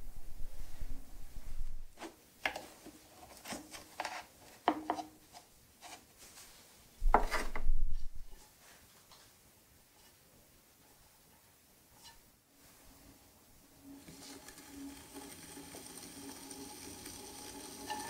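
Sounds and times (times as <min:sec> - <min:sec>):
knocks and scrapes on wood: 0:02.0 - 0:06.0, 0:07.0 - 0:08.5
chamois rubbing spinning clay: 0:14.0 - 0:18.0.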